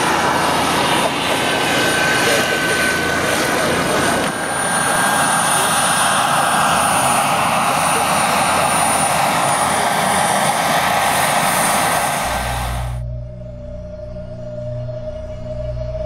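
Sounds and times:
model helicopter rotor and engine: 0:00.0 - 0:13.0
thin high whine: 0:00.0 - 0:16.0.

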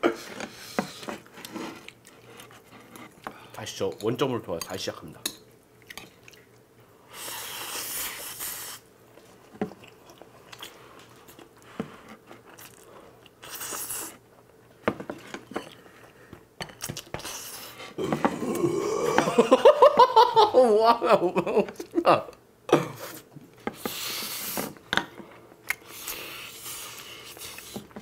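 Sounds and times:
chewing: 0:05.8 - 0:06.6, 0:09.7 - 0:14.0.

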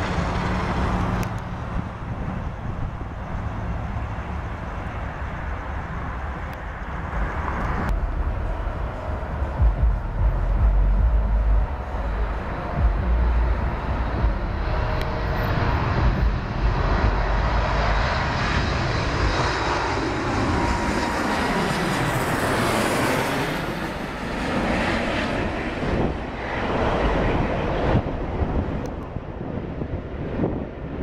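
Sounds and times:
airliner engine rush: 0:00.0 - 0:31.0
low rumbling bumps: 0:07.8 - 0:19.4.

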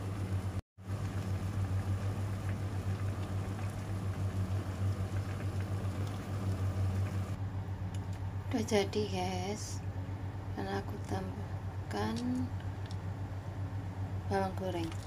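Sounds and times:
steady low hum: 0:00.0 - 0:15.0
soup bubbling in pot: 0:00.8 - 0:07.4.

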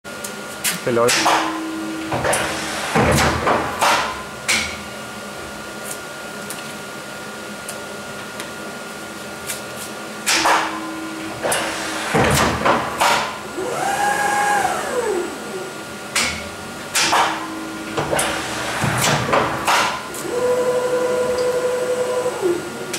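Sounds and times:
machine hum: 0:01.0 - 0:09.4, 0:10.0 - 0:22.9
motor whine: 0:13.4 - 0:16.0, 0:19.6 - 0:22.9.

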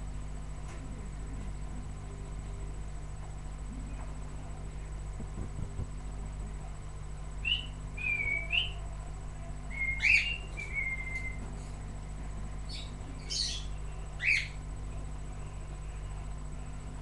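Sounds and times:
low steady hum: 0:00.0 - 0:17.0
parrot whistling: 0:07.4 - 0:08.8, 0:09.7 - 0:11.4.

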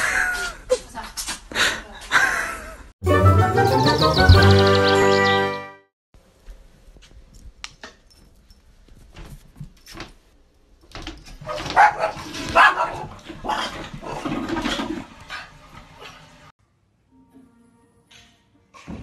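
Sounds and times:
small dog barking: 0:11.5 - 0:13.1.

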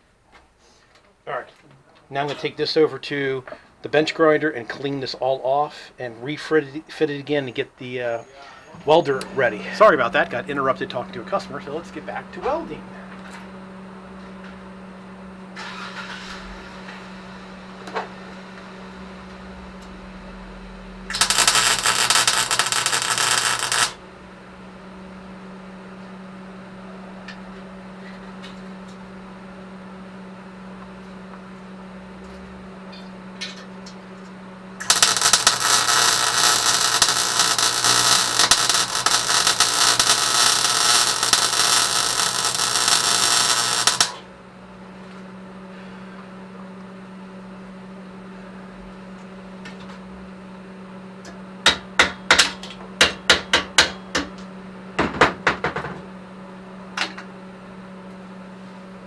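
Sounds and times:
steady hum: 0:02.5 - 0:54.9
arc welding crackle: 0:08.9 - 0:13.5, 0:21.0 - 0:24.0, 0:33.8 - 0:44.3.

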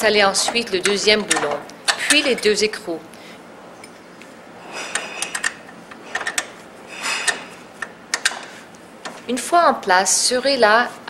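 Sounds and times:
bolts and nuts clicking: 0:00.2 - 0:02.7, 0:04.9 - 0:09.3.

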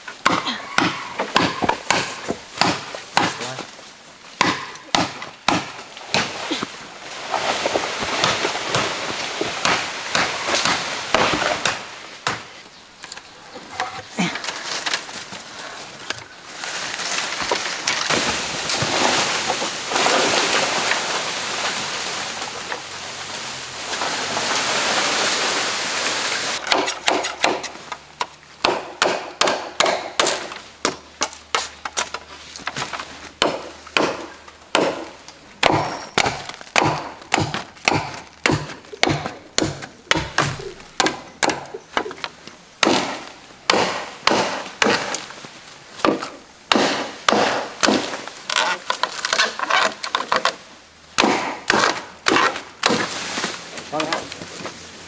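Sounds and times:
machete chopping bamboo: 0:00.2 - 0:03.6, 0:04.4 - 0:06.6, 0:08.2 - 0:12.5, 0:26.6 - 0:42.1, 0:42.8 - 0:45.3, 0:46.0 - 0:50.6, 0:51.2 - 0:54.2
rustle of bamboo leaves: 0:05.9 - 0:26.6, 0:30.6 - 0:33.8, 0:44.7 - 0:51.1, 0:52.0 - 0:55.0.

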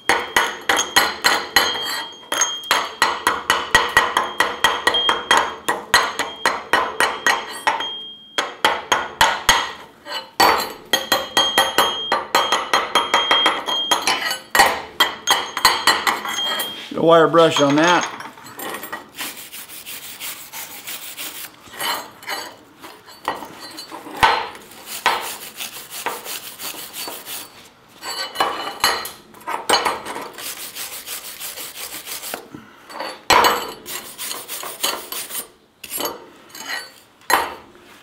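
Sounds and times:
wire brush scrubbing metal: 0:19.1 - 0:22.6, 0:24.6 - 0:27.6, 0:30.2 - 0:32.5, 0:33.8 - 0:36.0.

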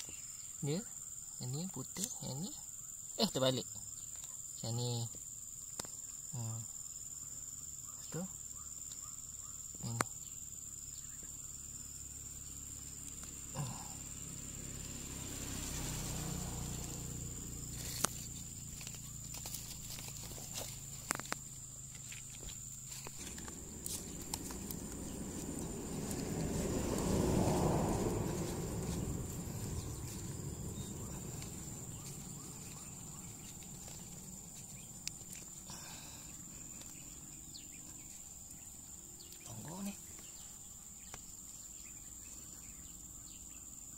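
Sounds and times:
high insect trill: 0:00.0 - 0:43.9
rustling: 0:16.7 - 0:35.7.

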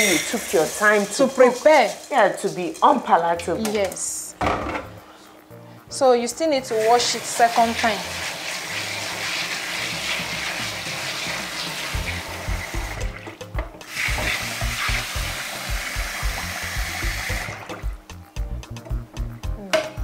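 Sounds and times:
tap water splashing into bowl: 0:09.8 - 0:16.4.

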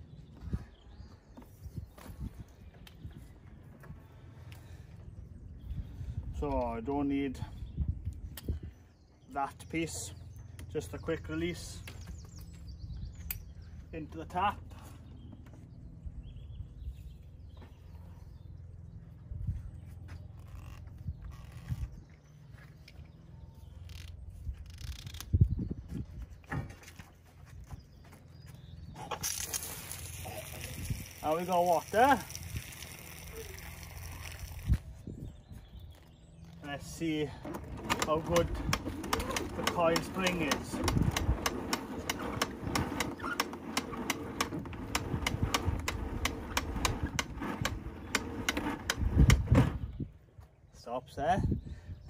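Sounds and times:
hose reel drum rumbling: 0:36.8 - 0:49.9.

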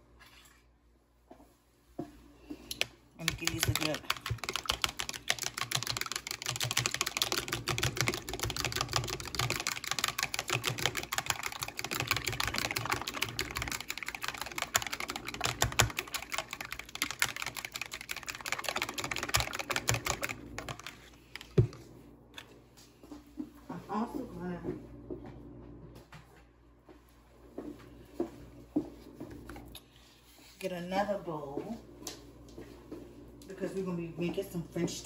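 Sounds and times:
utensil clicking beating eggs: 0:02.7 - 0:21.8.

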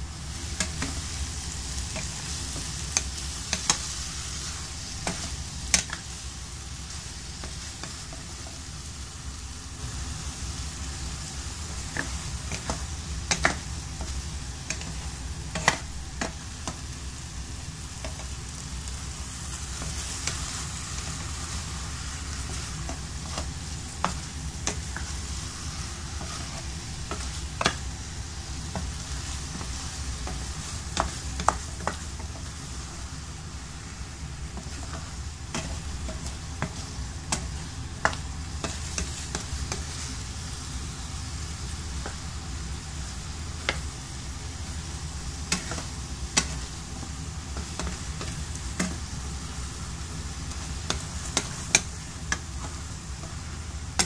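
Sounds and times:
food sizzling in a pan: 0:00.0 - 0:54.0
low steady hum: 0:00.0 - 0:54.0
spatula clicking against pan: 0:02.9 - 0:03.8, 0:12.0 - 0:14.9, 0:50.8 - 0:52.5.

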